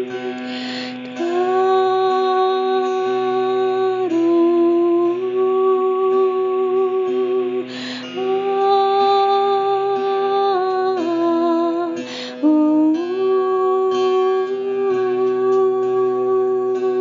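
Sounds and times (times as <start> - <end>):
woman singing long wordless notes: 0.0 - 17.0
woman taking a breath: 0.4 - 1.0, 7.7 - 8.1, 12.1 - 12.4.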